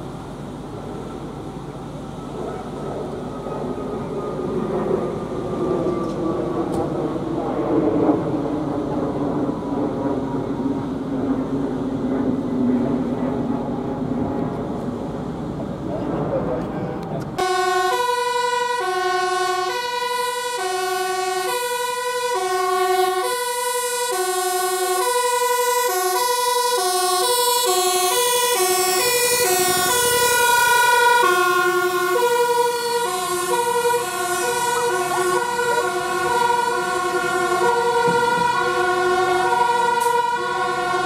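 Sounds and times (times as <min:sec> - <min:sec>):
fire engine two-tone siren: 0:00.0 - 0:12.0, 0:17.4 - 0:41.0
fire engine engine: 0:00.0 - 0:41.0.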